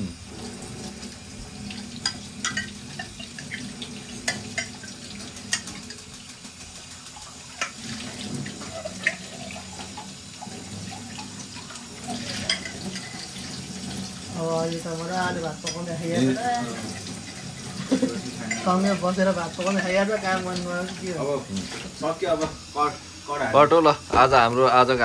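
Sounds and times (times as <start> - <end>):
tap water running into a steel sink: 0.0 - 25.0
metal dishware clinking: 12.3 - 13.2, 18.4 - 18.8.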